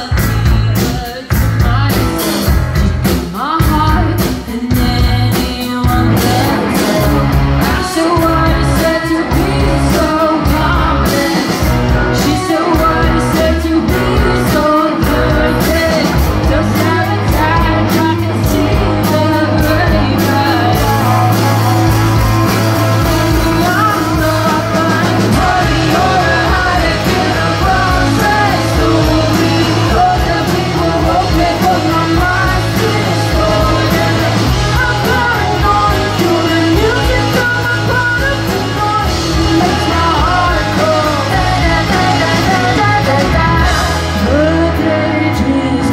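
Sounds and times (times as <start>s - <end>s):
woman singing: 0.0s - 2.6s, 3.2s - 45.9s
drum kit: 0.0s - 45.9s
electric bass: 0.0s - 45.9s
electric guitars: 0.0s - 45.9s.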